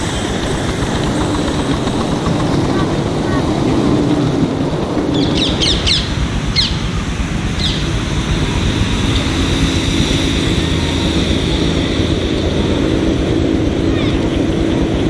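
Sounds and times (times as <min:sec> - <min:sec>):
miniature steam train rumbling: 0:00.0 - 0:15.0
small bird chirping: 0:05.1 - 0:06.9, 0:07.6 - 0:07.9.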